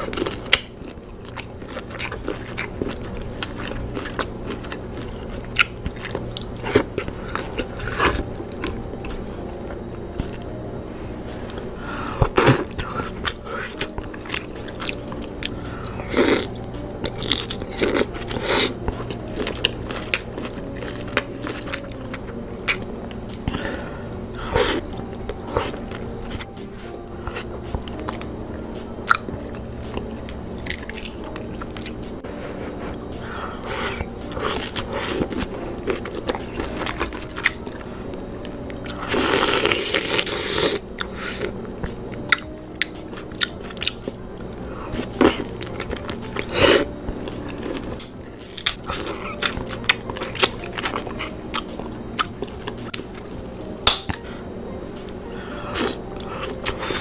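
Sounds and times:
wet chewing and crunching: 0.0s - 10.5s, 11.5s - 32.1s, 33.9s - 54.3s, 55.0s - 57.0s
soft background music: 0.0s - 57.0s.

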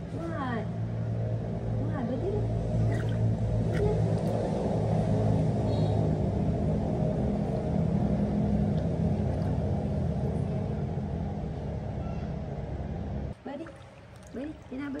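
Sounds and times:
low rumble with a hum: 0.0s - 15.0s.

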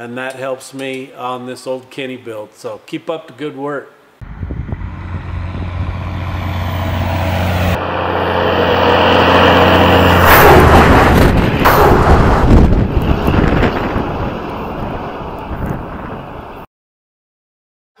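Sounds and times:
diesel truck engine hum: 4.2s - 11.6s.

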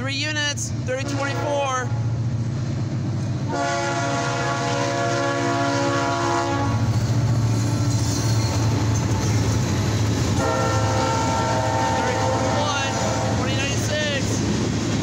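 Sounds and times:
diesel locomotive engine drone: 0.0s - 15.0s
train rolling: 0.0s - 15.0s
locomotive air horn: 3.5s - 6.9s, 10.4s - 13.6s.

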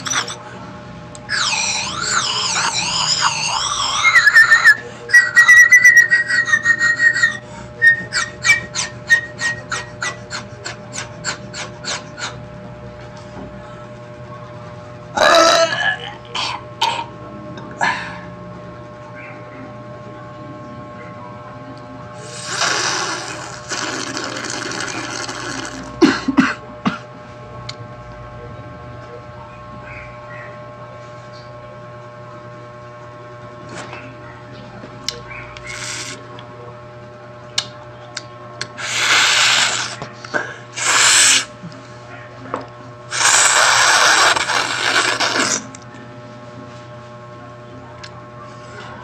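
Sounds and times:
sharp throat noises: 1.3s - 4.2s, 15.2s - 17.1s, 22.2s - 26.4s
squeaky sucking through straw: 1.3s - 10.4s, 22.2s - 25.9s, 35.6s - 36.2s, 38.8s - 40.0s, 40.8s - 41.5s, 43.1s - 45.7s
short slurps: 22.2s - 26.0s, 35.6s - 36.2s, 38.7s - 40.0s, 40.8s - 41.6s, 43.1s - 45.7s.

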